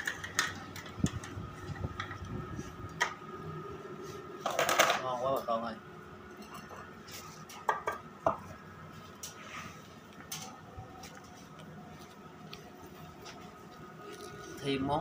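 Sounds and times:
faint background hum: 0.0s - 15.0s
dishes and utensils clinking: 6.3s - 8.4s.

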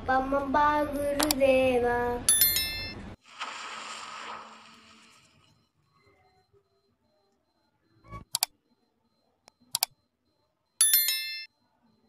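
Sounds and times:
mouse clicks: 1.2s - 1.4s, 8.3s - 8.5s, 9.7s - 9.9s
notification bell chime: 2.3s - 3.0s, 10.8s - 11.6s.

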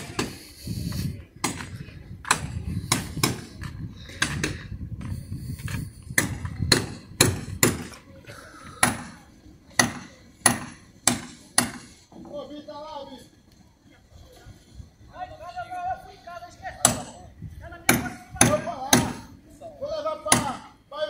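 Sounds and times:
sharp knocks: 6.2s - 8.0s, 9.8s - 12.0s.

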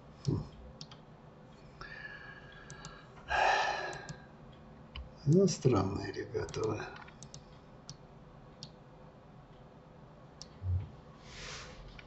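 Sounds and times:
faint computer mouse clicks: 0.2s - 1.0s, 2.6s - 3.0s, 3.9s - 4.2s, 6.5s - 8.0s
man sighing: 3.3s - 4.0s.

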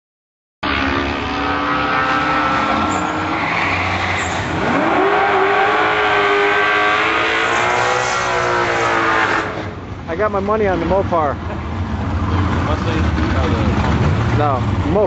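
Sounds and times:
engine revving sharply: 0.6s - 9.7s
race car engines idling: 9.8s - 15.0s.

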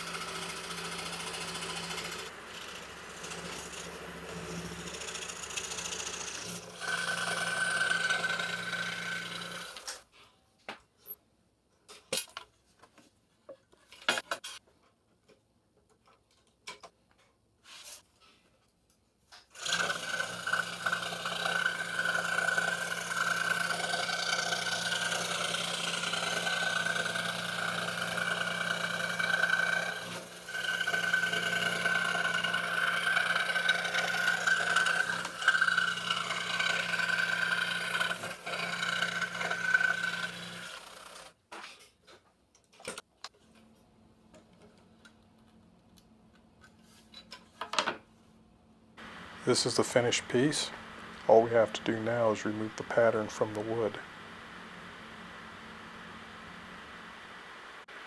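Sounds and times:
scroll saw cutting wood: 0.0s - 10.0s, 19.5s - 41.4s, 49.0s - 58.0s.

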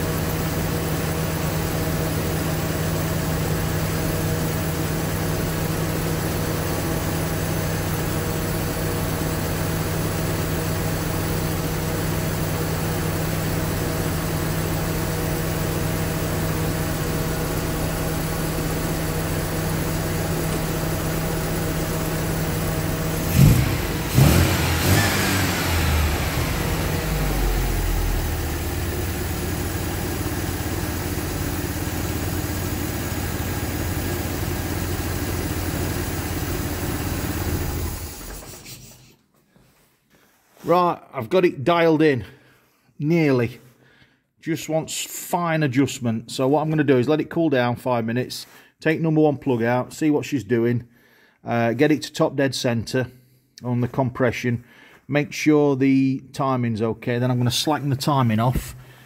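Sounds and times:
car engine idling: 0.0s - 39.1s
car engine revving: 5.2s - 38.9s.

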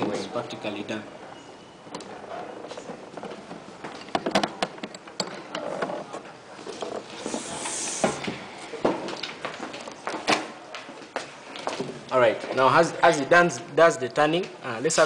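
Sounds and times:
scraping hiss: 7.1s - 8.7s.

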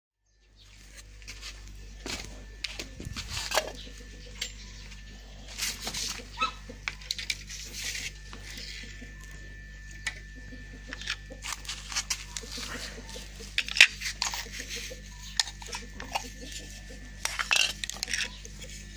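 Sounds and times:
steady low hum: 0.3s - 18.9s
fishing rod parts clicking and knocking: 13.5s - 16.6s.

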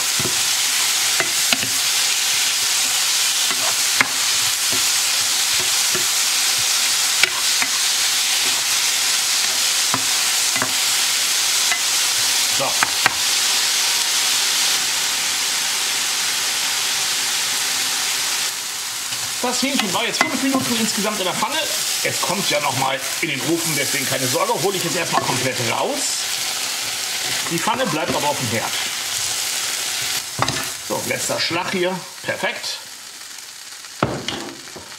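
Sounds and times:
spatula scraping and knocking pan: 0.0s - 11.0s, 19.1s - 21.0s, 24.8s - 25.6s, 26.3s - 29.3s, 30.0s - 30.8s
meat sizzling in a frying pan: 0.0s - 34.9s.

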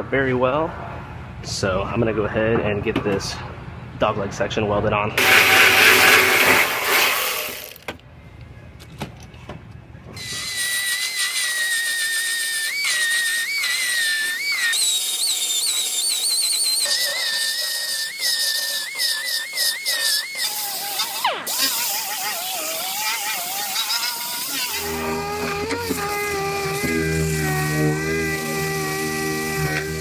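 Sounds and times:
belt sander grinding metal: 5.2s - 7.8s, 10.2s - 30.0s.

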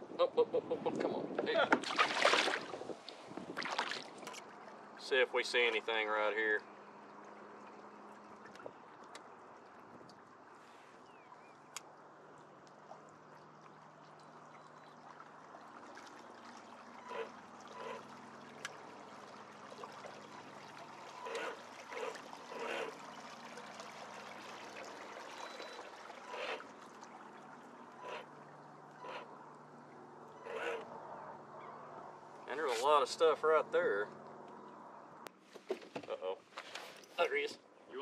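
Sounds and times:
faint water lapping: 0.0s - 34.8s
honking bird calls: 17.0s - 18.2s, 21.1s - 23.0s, 25.2s - 26.7s, 27.9s - 29.5s, 30.3s - 30.9s.

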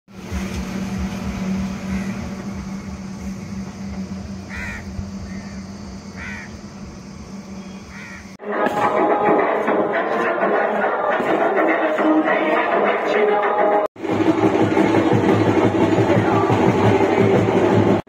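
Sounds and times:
steady low hum: 0.1s - 8.4s
crow cawing: 1.9s - 2.2s, 4.5s - 6.6s, 7.9s - 8.3s
music: 8.4s - 18.0s.

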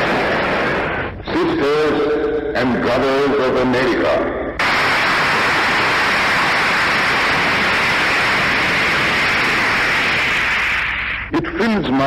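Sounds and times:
crowd applause: 0.0s - 1.0s, 4.6s - 11.3s.

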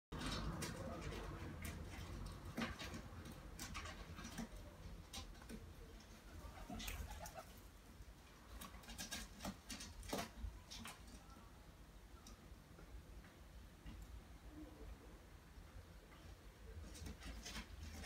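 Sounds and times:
pigeon taps and scratches: 0.2s - 7.5s, 8.5s - 11.2s, 16.8s - 18.0s.

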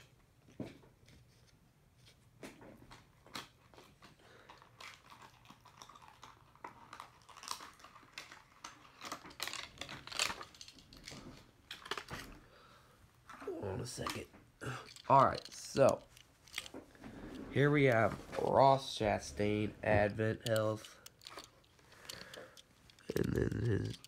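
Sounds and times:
packaging crinkling and crackling: 2.9s - 12.4s.

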